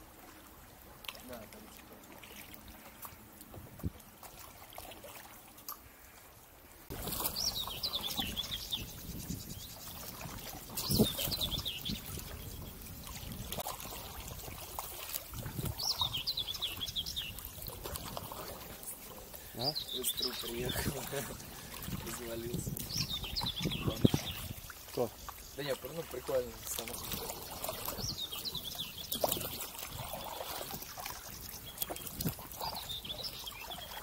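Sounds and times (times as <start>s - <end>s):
paddles splashing through water: 0.0s - 34.0s
songbird chirping: 7.0s - 34.0s.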